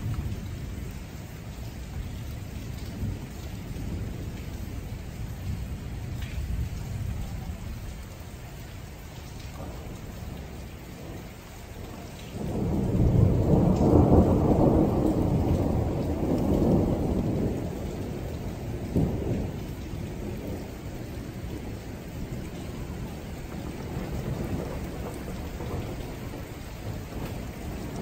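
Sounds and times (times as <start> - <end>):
thunder rolling: 9.5 - 28.0.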